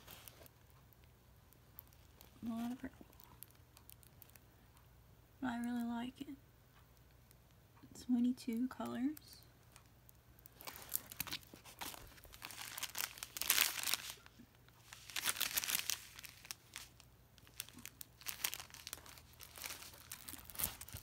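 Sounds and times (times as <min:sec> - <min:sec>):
plastic packaging crinkling: 0:00.0 - 0:00.5, 0:01.7 - 0:04.4, 0:10.4 - 0:21.0.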